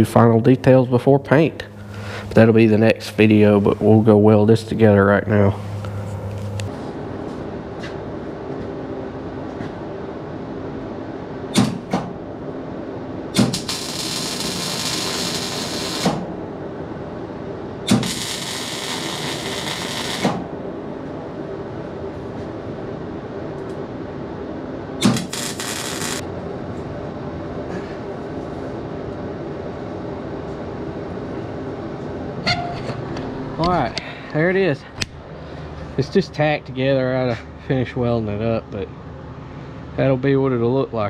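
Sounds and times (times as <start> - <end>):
steady hum: 0.0 - 41.0
welding arc crackling and hissing: 13.4 - 16.2, 17.9 - 20.4, 25.0 - 26.2.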